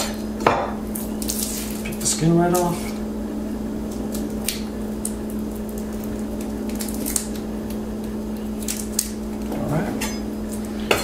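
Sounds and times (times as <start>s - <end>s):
garlic skins crackling: 0.9s - 3.0s, 3.8s - 10.8s.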